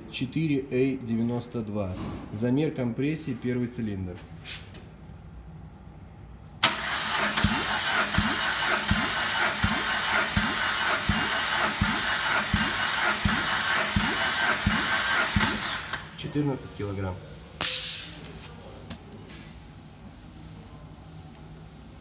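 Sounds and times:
engine cranking: 6.6s - 16.1s.

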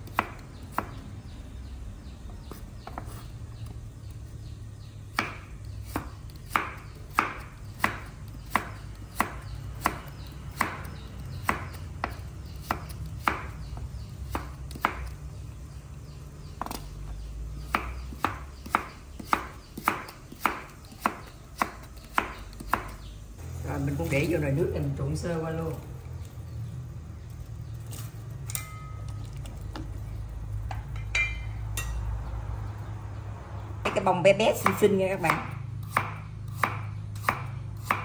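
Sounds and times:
knife chopping on wooden board: 2.4s - 3.3s, 5.1s - 15.2s, 17.7s - 23.0s, 34.6s - 38.0s.

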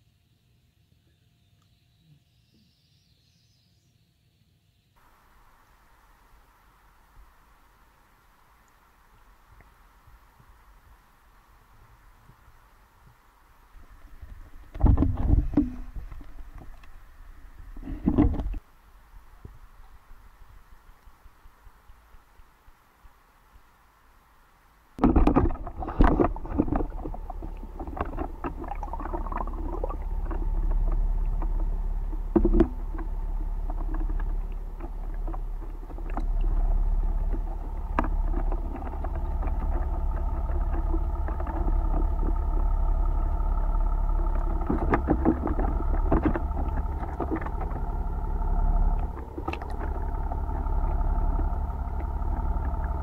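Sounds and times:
boat motor underwater hum: 5.0s - 53.0s
knocks and clicks: 25.0s - 53.0s.

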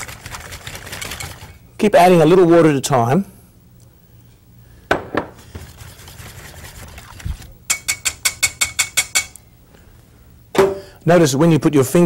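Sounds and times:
whisk swishing batter: 0.0s - 1.6s, 5.4s - 8.3s
whisk clicking against bowl: 7.7s - 9.4s.

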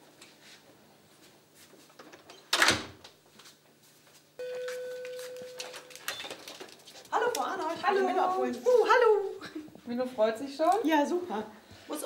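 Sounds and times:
electronic buzzer tone: 4.4s - 5.9s.

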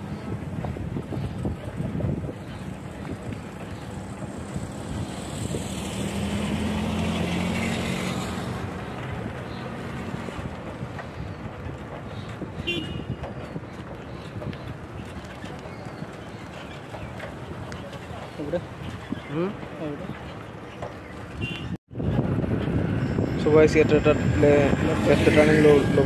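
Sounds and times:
wind noise on microphone: 0.0s - 16.4s, 21.3s - 26.0s
car passing by: 3.6s - 10.6s, 22.4s - 26.0s.

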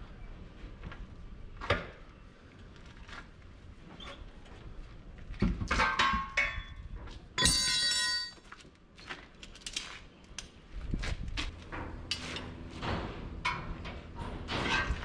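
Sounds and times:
metal tools knocking and clinking: 5.8s - 6.8s, 7.4s - 8.4s
loud ringing metal clang: 7.4s - 8.4s.

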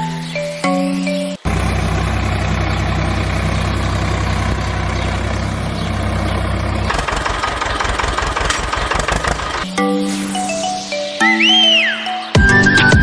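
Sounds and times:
tractor engine idling: 1.4s - 9.7s
rattling mechanical clatter: 1.5s - 9.7s.

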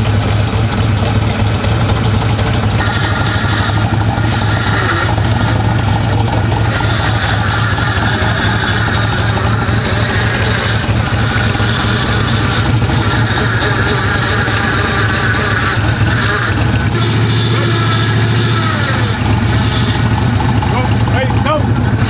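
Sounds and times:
truck engine idling: 0.0s - 22.0s.

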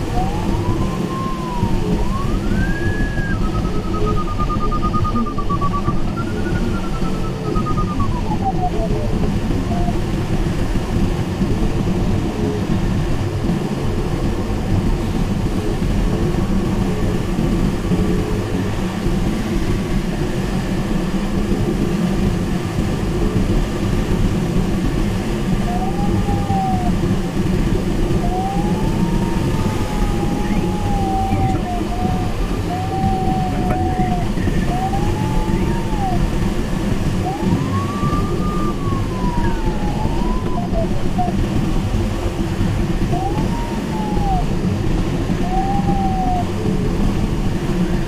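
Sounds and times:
variometer tone: 0.0s - 11.2s, 24.2s - 48.0s
airflow rushing over canopy: 0.0s - 18.0s
short electronic beep: 2.9s - 8.4s.

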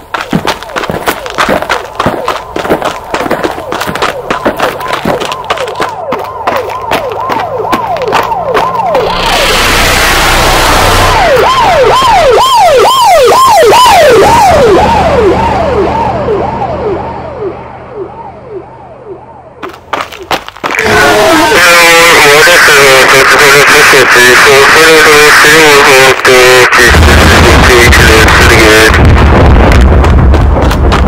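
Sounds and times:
siren-like wailing tone: 0.7s - 19.6s, 20.8s - 26.0s
rushing noise: 7.8s - 12.3s, 26.5s - 31.0s.

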